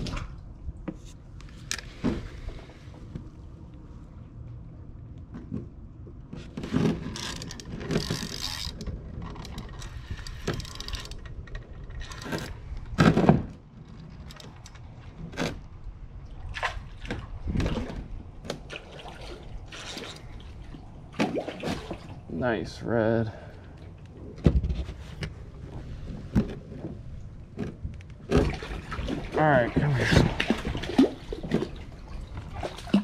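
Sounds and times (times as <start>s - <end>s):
water splashing: 16.2s - 22.4s, 28.3s - 33.0s
knocks and rustles: 24.4s - 28.8s.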